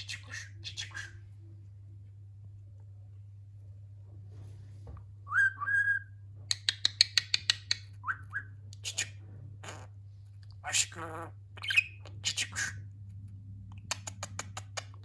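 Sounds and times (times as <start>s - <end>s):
budgerigar whistling and chattering: 10.7s - 12.8s.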